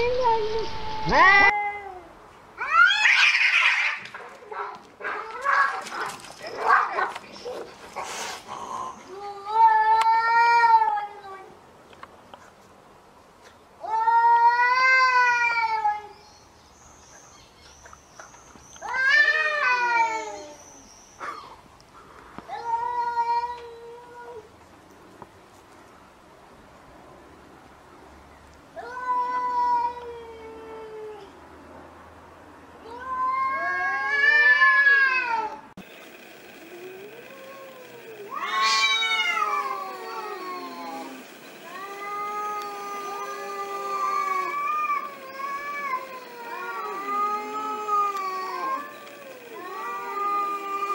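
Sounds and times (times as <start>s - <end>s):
cats yowling: 0.0s - 2.0s, 2.6s - 4.0s, 36.6s - 50.9s.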